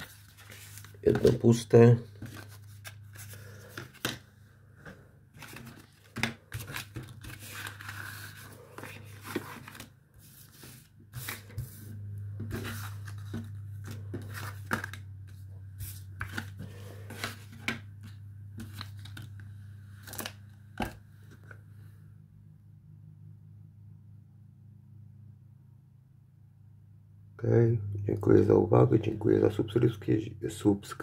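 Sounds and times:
paper sachets rustling: 0.0s - 4.2s, 5.4s - 9.9s
steady low hum: 0.0s - 31.0s.

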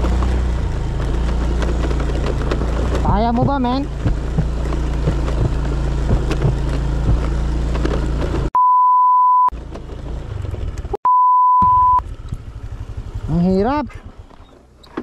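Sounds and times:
scooter engine under load: 0.0s - 8.6s, 9.5s - 11.0s, 11.6s - 15.0s
stones ticking under tyres: 0.0s - 8.6s, 9.5s - 11.0s, 12.0s - 13.1s
censor bleep: 8.6s - 9.5s, 11.0s - 12.0s.

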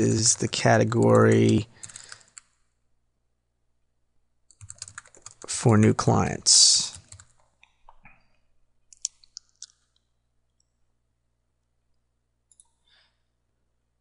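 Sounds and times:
keyboard keystrokes: 4.5s - 5.4s, 6.9s - 8.0s.

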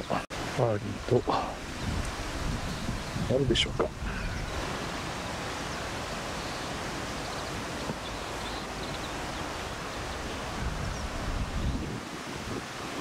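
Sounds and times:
wind rushing: 1.5s - 6.9s, 9.2s - 13.0s.

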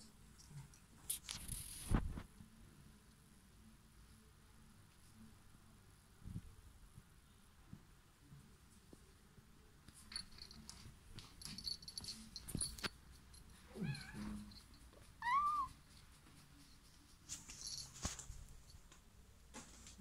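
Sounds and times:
cat meowing: 13.7s - 14.5s, 15.2s - 15.8s.

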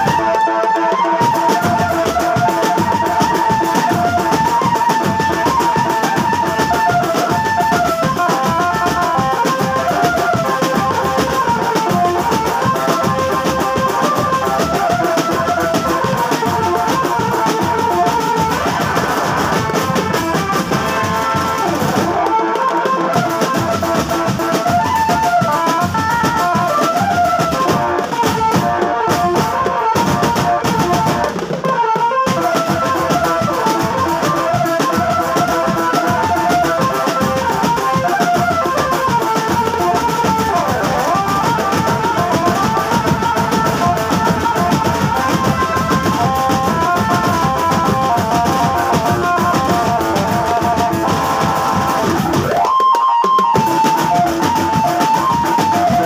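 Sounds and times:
marching drums and percussion: 0.0s - 56.0s
electronic keyboard melody: 26.4s - 56.0s.

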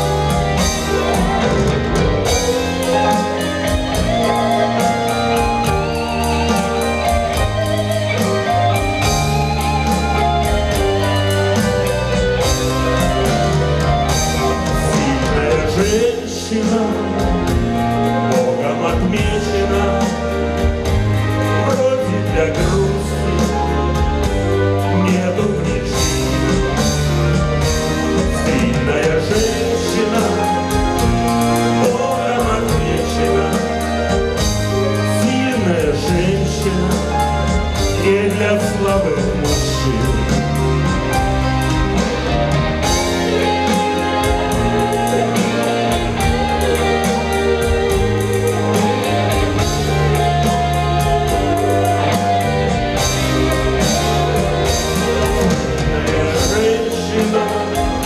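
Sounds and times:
band accompaniment: 0.0s - 58.0s
bass line: 0.0s - 58.0s
man singing: 14.4s - 26.9s, 28.2s - 41.0s, 42.8s - 58.0s.

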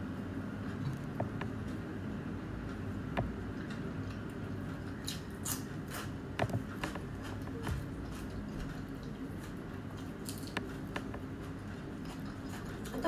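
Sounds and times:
low steady hum: 0.0s - 13.0s
person chewing leafy greens: 2.7s - 13.0s.

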